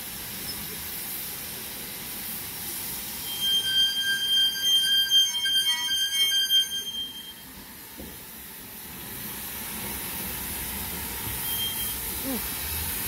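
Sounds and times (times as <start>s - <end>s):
low rumble of locomotive: 0.0s - 13.0s
steam hissing: 0.0s - 13.0s
locomotive wheels squealing: 3.1s - 7.5s, 11.4s - 12.2s.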